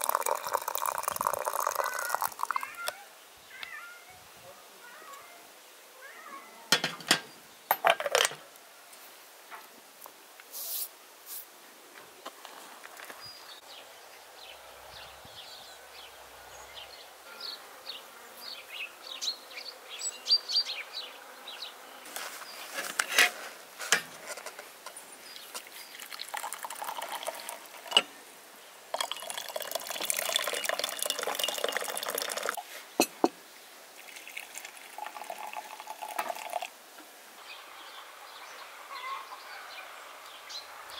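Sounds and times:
water pouring into teapot: 0.0 - 2.7, 25.6 - 28.1, 28.9 - 32.6, 34.0 - 36.7
china clinking: 6.8 - 8.4, 29.0 - 33.3.

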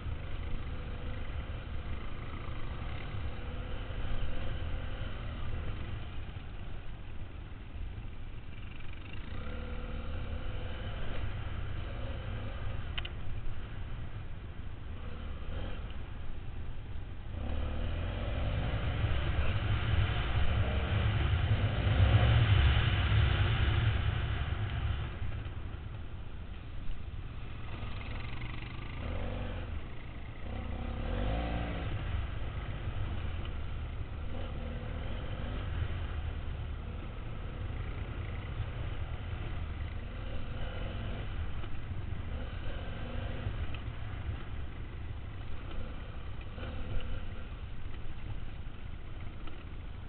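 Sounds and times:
motorcycle engine accelerating: 17.3 - 26.0, 27.2 - 49.7.

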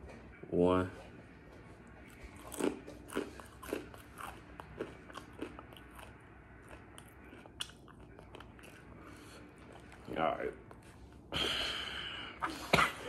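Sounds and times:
chip crunching: 2.2 - 10.1.

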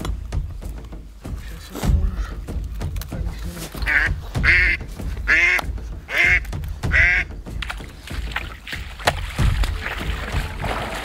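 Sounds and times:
duck quacking: 3.8 - 7.3.

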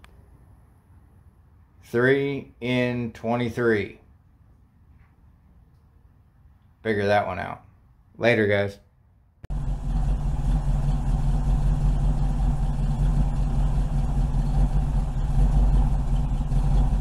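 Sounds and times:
engine idling: 9.5 - 17.0.

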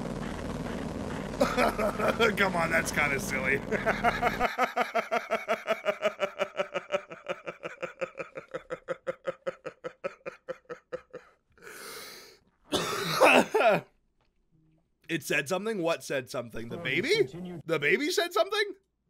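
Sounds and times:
man laughing: 1.4 - 11.4, 12.7 - 13.8.

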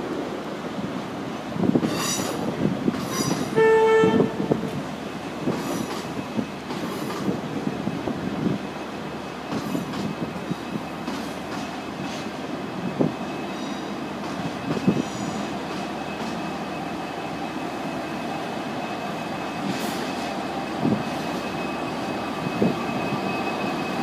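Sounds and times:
train rumble and rail noise: 0.0 - 24.0
train horn blast: 3.5 - 4.8.

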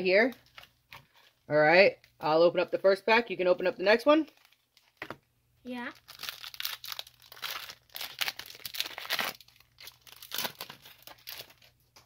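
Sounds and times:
foil wrapper tearing and crinkling: 4.2 - 5.1, 5.9 - 12.0.

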